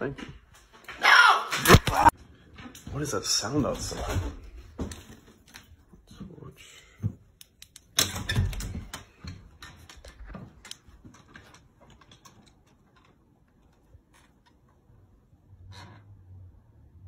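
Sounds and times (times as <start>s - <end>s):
door opening: 7.9s - 10.6s.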